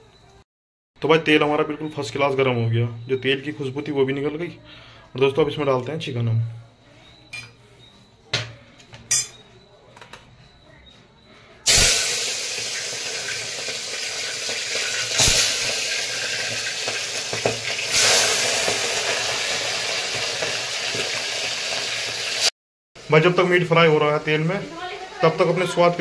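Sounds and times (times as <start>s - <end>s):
utensils clinking: 8.4s - 10.3s
meat sizzling in hot oil: 11.7s - 25.9s.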